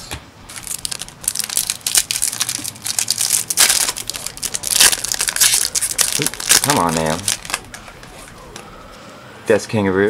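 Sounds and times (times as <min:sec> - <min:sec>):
foil wrapper crinkling: 0:00.5 - 0:08.2.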